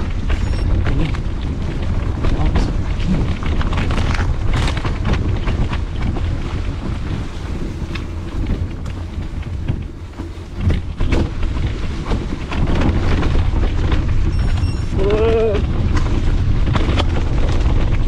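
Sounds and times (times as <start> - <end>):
bike rattling and knocking: 0.0 - 18.0
wind buffeting microphone: 0.0 - 18.0.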